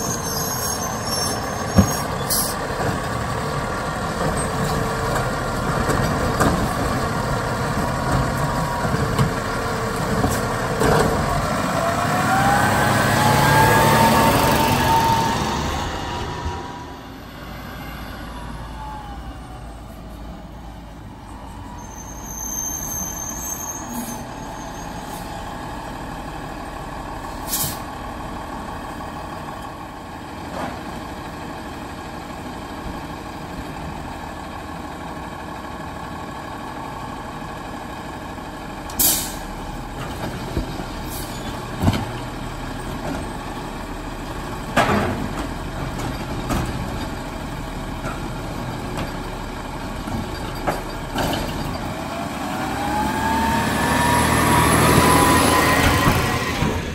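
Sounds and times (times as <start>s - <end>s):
garbage truck engine running: 25.4s - 56.9s
air brake hiss: 27.4s - 27.9s, 39.0s - 39.5s
clanks and thumps of cart: 40.0s - 43.4s, 44.7s - 47.2s, 50.0s - 52.0s.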